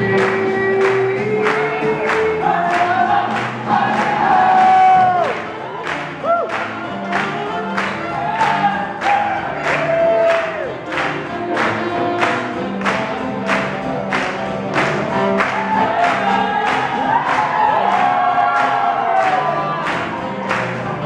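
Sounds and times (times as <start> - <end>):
crowd clapping and cheering: 0.0 - 21.0
swing band playing with singing: 0.0 - 21.0.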